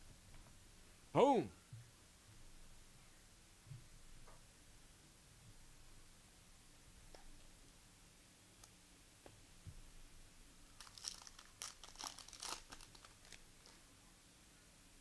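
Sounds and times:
foil wrapper tearing and crinkling: 0:10.8 - 0:13.8.

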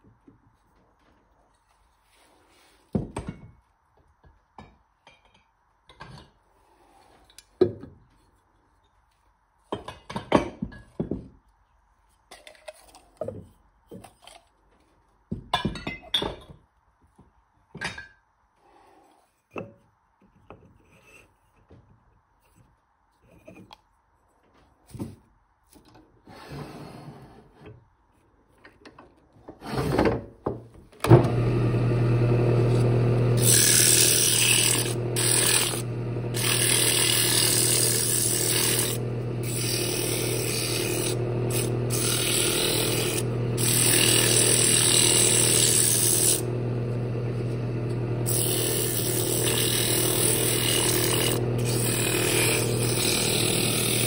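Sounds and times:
wood lathe humming: 0:31.1 - 0:54.0.

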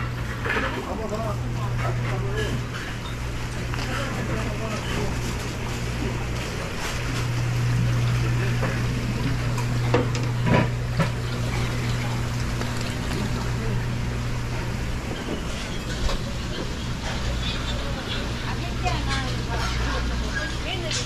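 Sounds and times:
tank pumps humming: 0:00.0 - 0:21.0
water running and trickling: 0:07.0 - 0:15.0.

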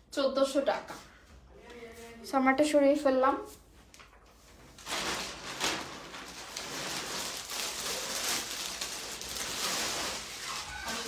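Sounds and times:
fabric rustling: 0:03.5 - 0:11.0.

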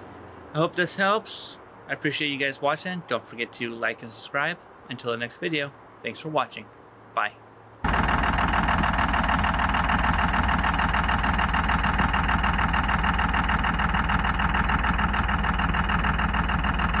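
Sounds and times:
diesel engine idling: 0:07.8 - 0:17.0.

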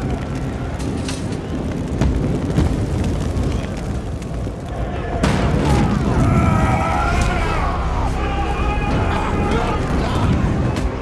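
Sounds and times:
flames rumbling: 0:00.0 - 0:11.0
loud burst of flame: 0:00.0 - 0:11.0
man screaming: 0:06.2 - 0:10.2.

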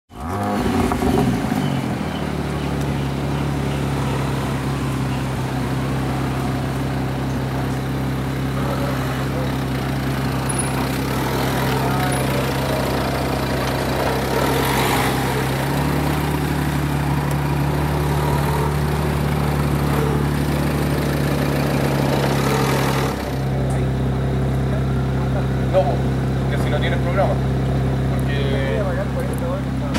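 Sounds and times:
car engine starting and idling: 0:00.1 - 0:29.9.

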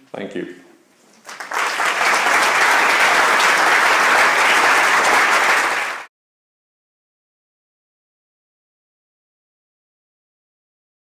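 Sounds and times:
audience applauding: 0:01.2 - 0:06.1.

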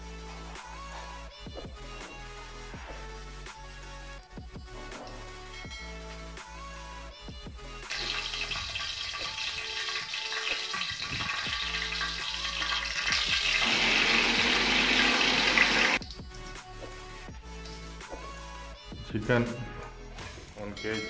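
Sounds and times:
electronic background music: 0:00.0 - 0:21.0
hot oil sizzling: 0:07.9 - 0:16.0.

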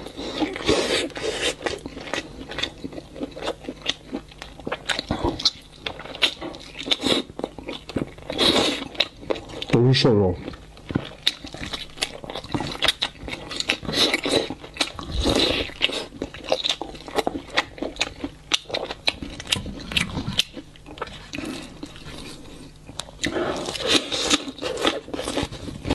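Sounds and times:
person gnawing meat off bone: 0:00.0 - 0:09.8, 0:10.4 - 0:25.9.

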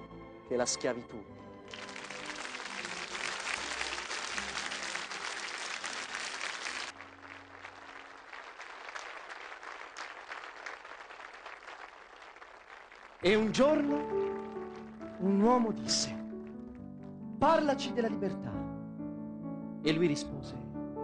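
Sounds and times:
large audience applauding: 0:01.7 - 0:15.3.

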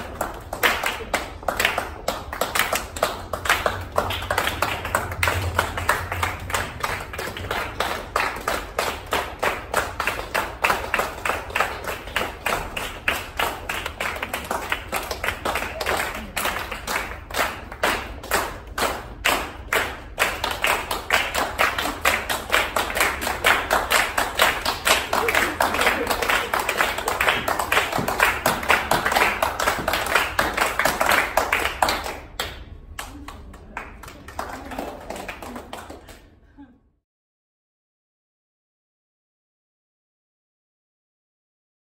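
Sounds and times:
group of people clapping: 0:00.0 - 0:36.5.

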